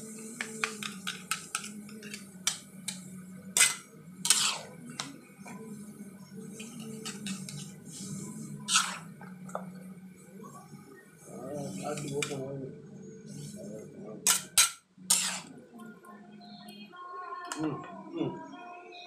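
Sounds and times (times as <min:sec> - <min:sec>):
utensil clinking on metal wok: 0:03.6 - 0:05.1, 0:14.3 - 0:15.5.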